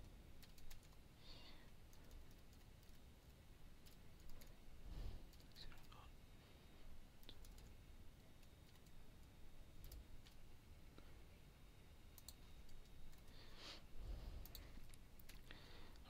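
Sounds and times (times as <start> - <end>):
faint keyboard keystrokes: 0.3 - 1.0, 1.8 - 4.6, 7.2 - 10.4.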